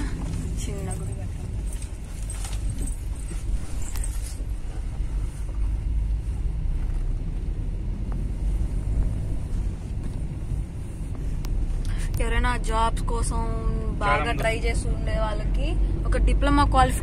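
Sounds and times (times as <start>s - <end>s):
car engine and road rumble: 0.0s - 17.0s.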